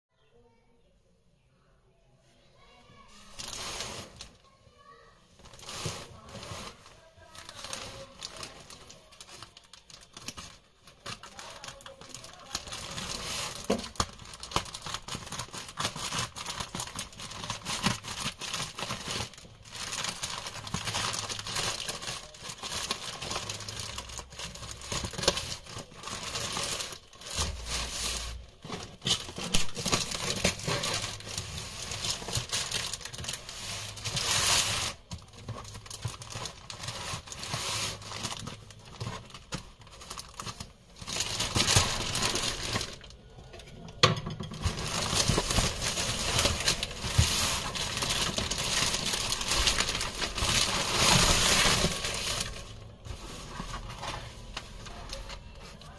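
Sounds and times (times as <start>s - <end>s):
plastic bag crinkling and tearing: 2.9s - 43.6s, 44.4s - 55.9s.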